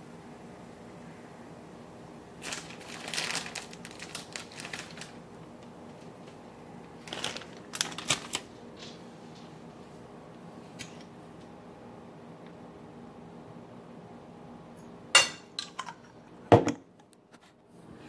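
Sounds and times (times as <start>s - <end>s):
rustling and clicking handling noise: 2.4s - 11.6s.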